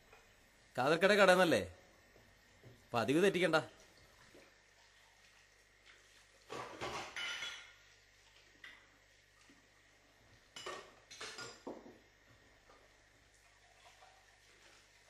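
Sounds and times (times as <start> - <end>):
clinking of dishes and utensils: 6.5 - 7.8, 10.6 - 12.0.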